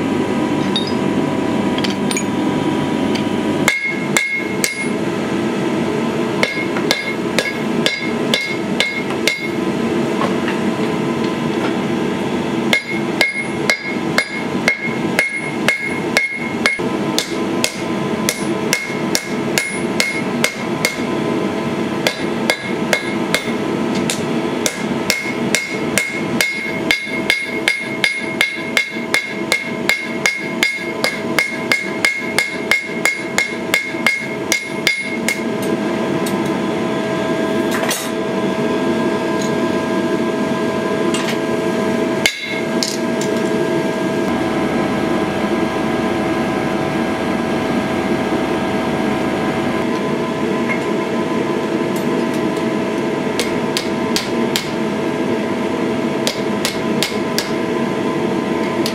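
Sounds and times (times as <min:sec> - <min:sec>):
hammer striking metal on anvil: 0:00.6 - 0:01.0, 0:03.6 - 0:05.0, 0:06.4 - 0:09.6, 0:12.7 - 0:21.1, 0:22.0 - 0:35.5, 0:42.2 - 0:43.4, 0:53.4 - 0:54.8, 0:56.2 - 0:57.6.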